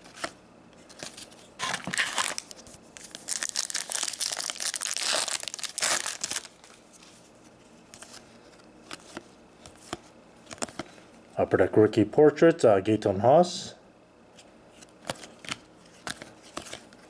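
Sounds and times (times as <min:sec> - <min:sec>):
foil pack crinkling and tearing: 0:00.9 - 0:06.8.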